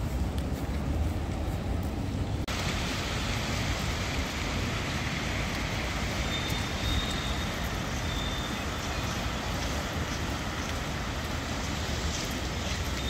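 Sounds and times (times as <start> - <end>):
city traffic rumble: 0.0 - 13.0.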